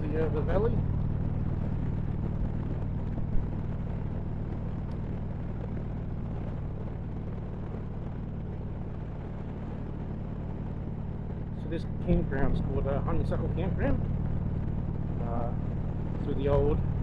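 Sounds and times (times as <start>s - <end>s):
motorcycle engine cruising: 0.0s - 17.0s
road and wind noise: 0.0s - 17.0s.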